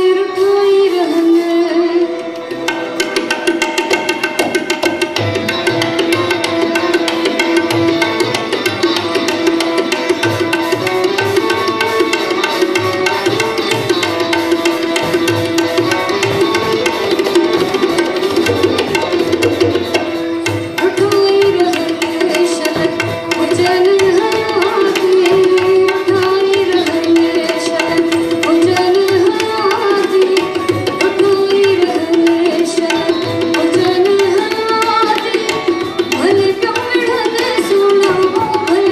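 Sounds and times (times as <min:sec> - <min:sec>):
woman singing: 0:00.0 - 0:02.4, 0:20.7 - 0:38.9
sustained melodic instrument: 0:00.0 - 0:38.9
tabla beat: 0:00.0 - 0:38.9.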